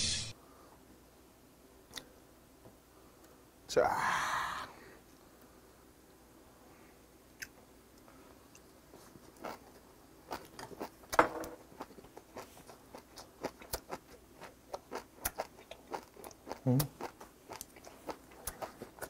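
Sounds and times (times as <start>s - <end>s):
person chewing wet food: 8.5s - 19.0s.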